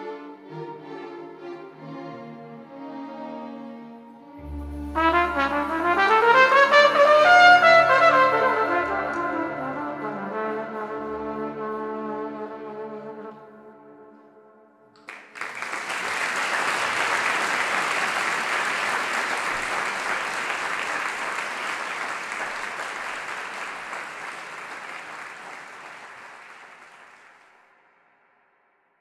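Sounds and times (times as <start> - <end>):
held musical note: 4.2 - 13.8
audience applause: 15.0 - 27.6.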